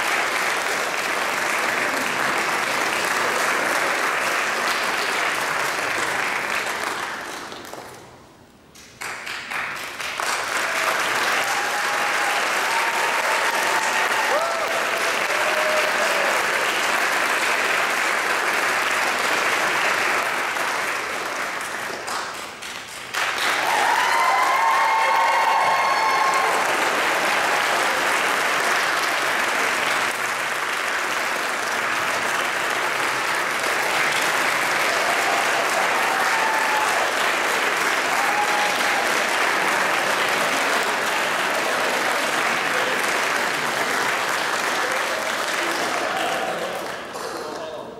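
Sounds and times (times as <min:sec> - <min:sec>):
audience applauding: 0:00.0 - 0:08.2, 0:08.8 - 0:47.9.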